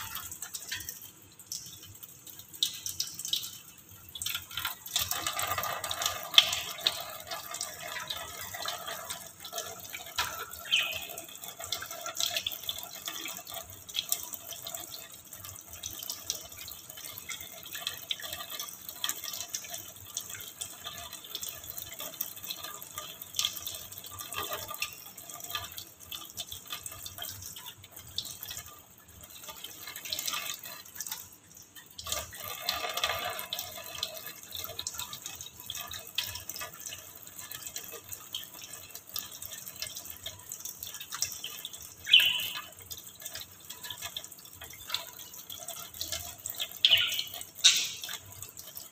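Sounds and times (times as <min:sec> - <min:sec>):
water dripping into metal sink: 0:00.0 - 0:48.9
tap water splashing: 0:32.0 - 0:48.8.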